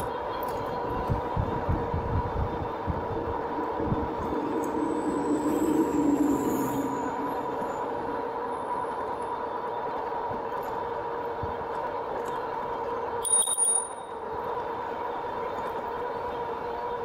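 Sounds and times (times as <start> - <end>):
tyre and wind noise: 0.0 - 5.4
high-pitched ringing strikes: 3.2 - 9.4.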